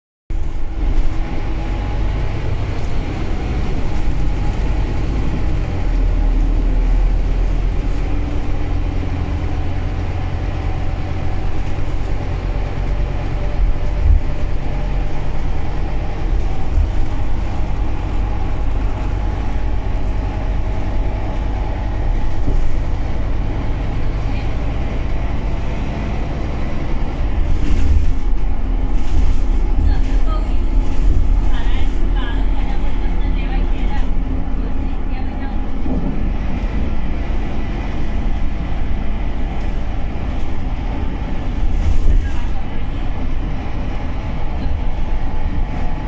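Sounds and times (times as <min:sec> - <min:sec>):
bus engine drone: 0:00.3 - 0:46.0
road noise: 0:00.3 - 0:46.0.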